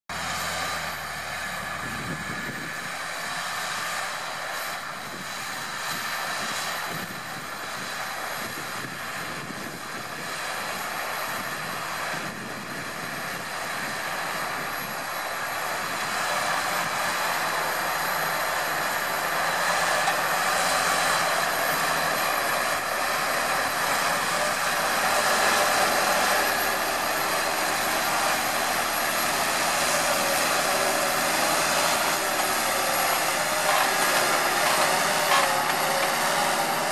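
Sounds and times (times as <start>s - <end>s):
tractor running: 0.1s - 36.9s.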